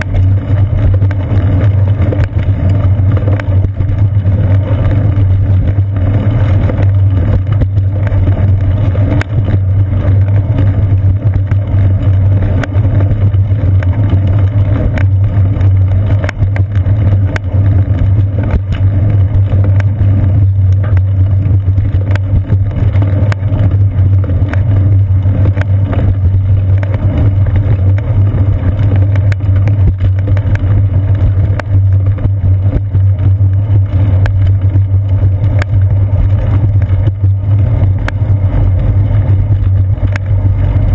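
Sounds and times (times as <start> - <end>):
bicycle riding rumble: 0.0 - 40.9.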